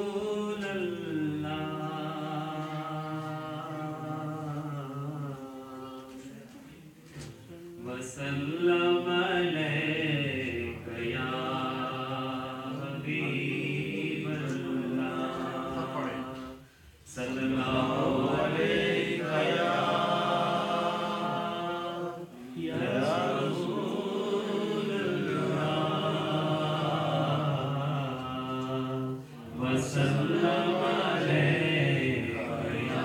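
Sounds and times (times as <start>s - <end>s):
man singing unaccompanied: 7.8s - 17.8s.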